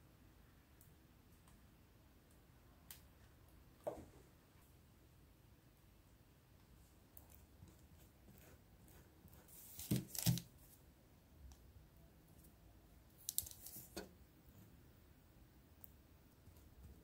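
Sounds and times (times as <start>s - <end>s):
knife scraping bread: 7.9s - 10.4s.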